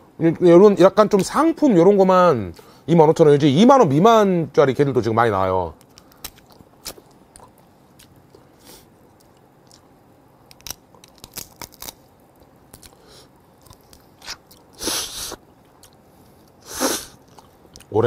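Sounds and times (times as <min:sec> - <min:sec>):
shell crunching and clicking: 0:05.8 - 0:08.2, 0:10.4 - 0:13.0
person chewing shellfish: 0:05.8 - 0:08.5, 0:09.1 - 0:17.9.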